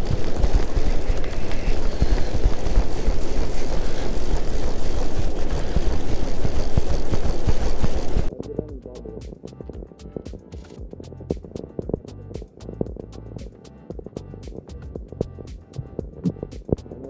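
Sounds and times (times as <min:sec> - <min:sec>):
wind buffeting microphone: 0:00.0 - 0:08.3.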